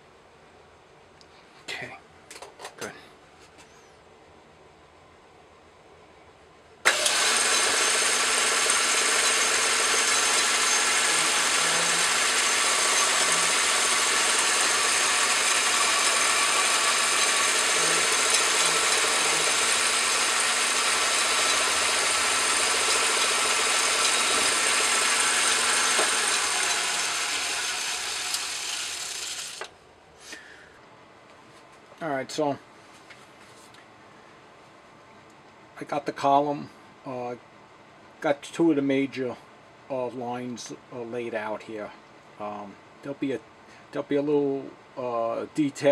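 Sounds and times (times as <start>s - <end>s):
metal lathe whirring: 6.9s - 29.7s.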